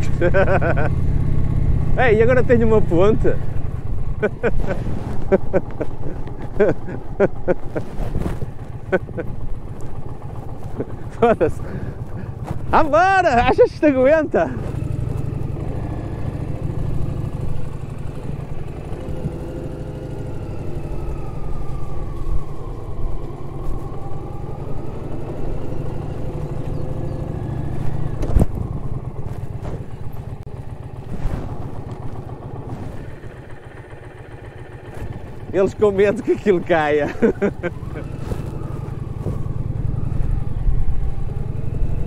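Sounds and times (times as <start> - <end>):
motorcycle engine running: 0.0 - 42.0.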